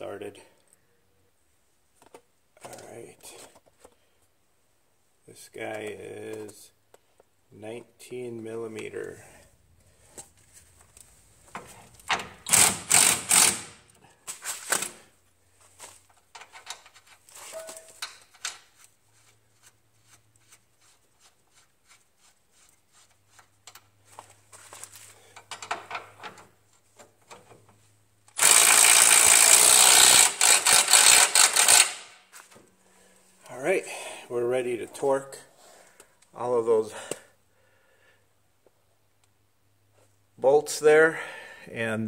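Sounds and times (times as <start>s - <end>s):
hand ratchet clicking: 12.0s - 13.9s, 28.3s - 32.2s
power wrench running: 12.1s - 14.0s, 28.3s - 32.2s
tool clatter: 15.8s - 18.9s, 23.6s - 27.8s.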